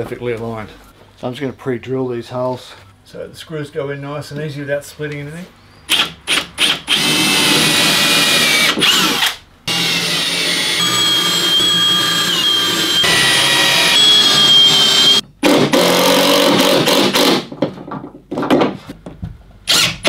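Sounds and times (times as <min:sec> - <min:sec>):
cordless drill boring into wood: 0:05.9 - 0:15.2, 0:19.7 - 0:20.0.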